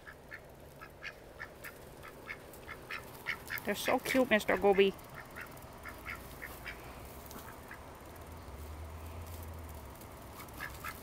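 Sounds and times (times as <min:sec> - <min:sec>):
low steady rumble: 0:00.0 - 0:11.0
duck quacking quietly: 0:05.2 - 0:07.8.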